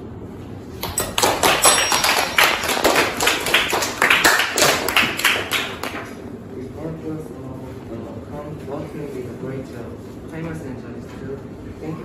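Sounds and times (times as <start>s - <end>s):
group applauding: 0.8s - 6.2s.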